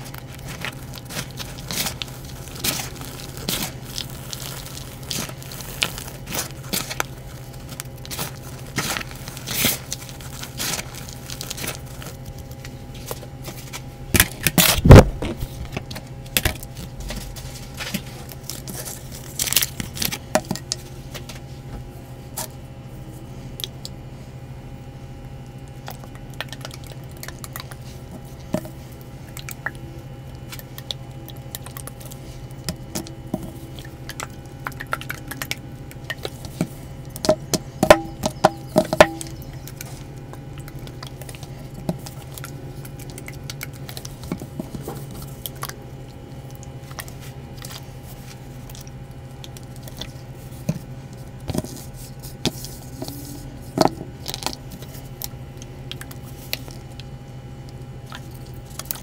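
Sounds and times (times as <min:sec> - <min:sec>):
chalk snapping and cracking: 0:00.0 - 0:21.4, 0:25.6 - 0:59.0
wet chalk squishing and crunching: 0:00.0 - 0:24.4, 0:25.0 - 0:59.0
steady low hum: 0:00.0 - 0:59.0.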